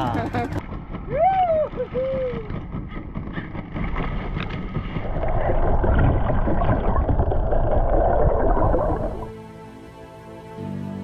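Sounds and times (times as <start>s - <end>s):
underwater rush and gurgle: 3.1s - 9.3s.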